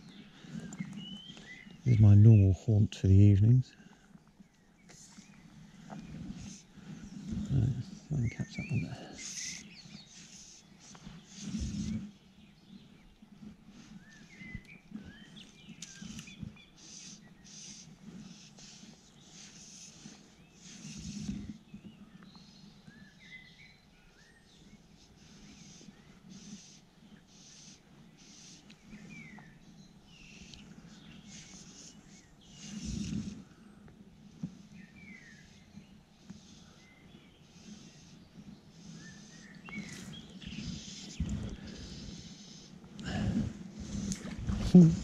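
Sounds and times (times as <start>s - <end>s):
faint outdoor hiss: 0.0s - 45.0s
small birds chirping: 0.0s - 45.0s
low rumbles on microphone: 43.1s - 45.0s.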